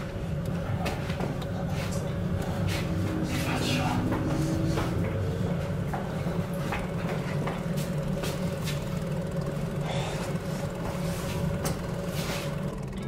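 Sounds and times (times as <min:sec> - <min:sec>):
steady low hum: 0:00.0 - 0:13.0
footstep knocks and rustles: 0:00.6 - 0:09.0.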